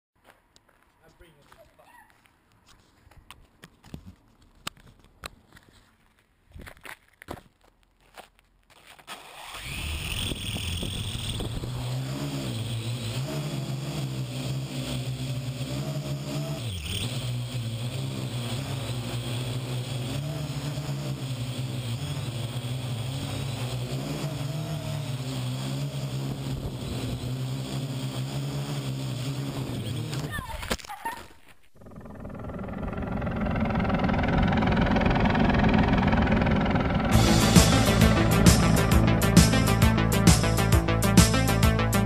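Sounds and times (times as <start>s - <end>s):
drone rotors buzzing: 9.4s - 30.8s, 31.6s - 42.0s.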